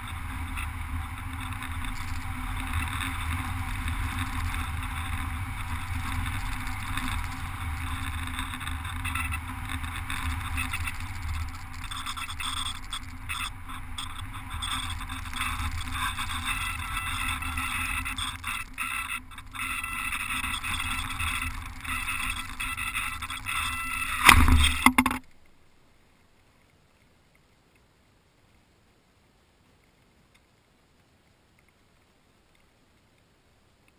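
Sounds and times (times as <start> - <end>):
wind rushing past camera: 0.0 - 25.0.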